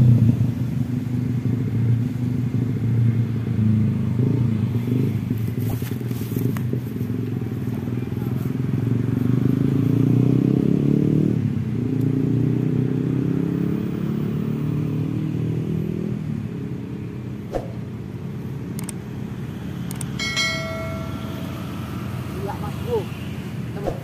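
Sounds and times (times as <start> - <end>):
single click: 18.8 - 19.0
motorcycle engine passing: 18.8 - 24.0
short bell-like chime: 20.2 - 22.1.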